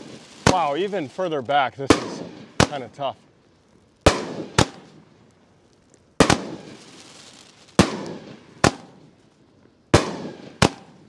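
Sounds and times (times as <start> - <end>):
firework bangs with echo: 0.0 - 1.1, 1.8 - 3.1, 4.0 - 5.1, 6.2 - 9.2, 9.9 - 11.0.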